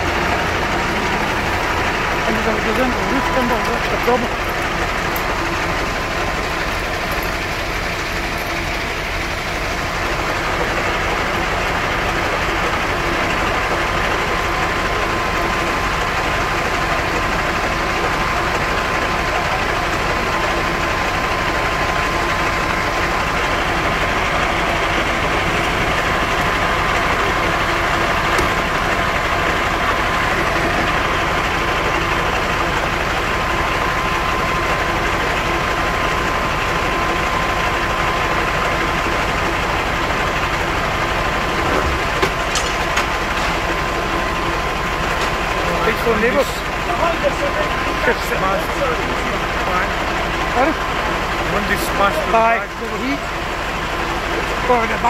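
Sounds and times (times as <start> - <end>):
fire engine running: 0.0 - 55.0
thin high tone: 0.8 - 5.3.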